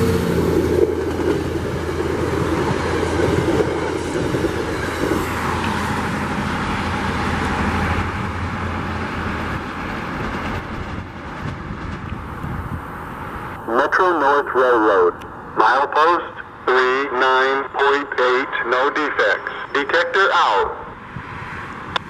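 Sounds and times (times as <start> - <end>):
train coaches rolling on rails: 0.0 - 13.5.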